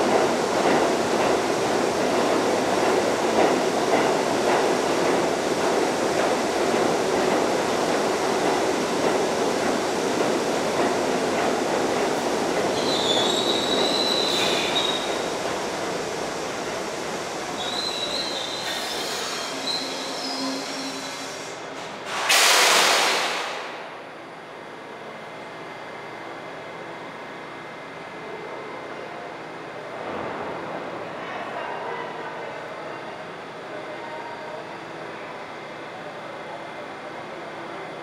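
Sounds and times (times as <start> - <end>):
train wheel and track rumble: 0.0 - 38.0
high wheel squeals: 12.8 - 15.2, 17.6 - 21.4.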